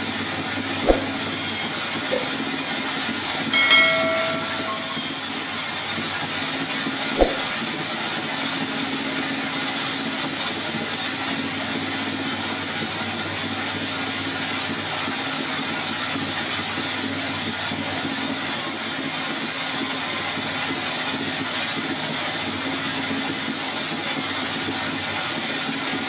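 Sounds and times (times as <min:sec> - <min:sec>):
sharp knock: 0:07.2 - 0:07.4.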